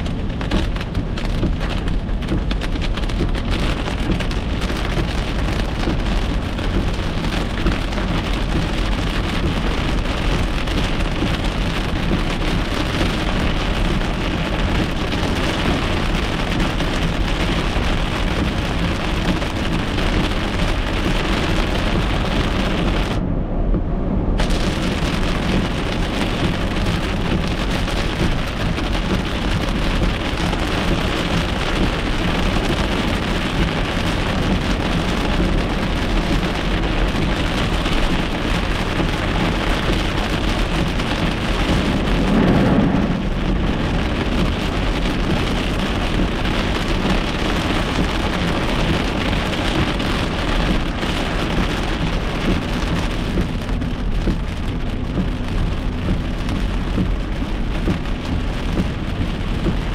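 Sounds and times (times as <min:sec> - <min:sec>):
heavy rain on car roof: 0:00.0 - 0:59.9
low rumble: 0:17.8 - 0:50.1.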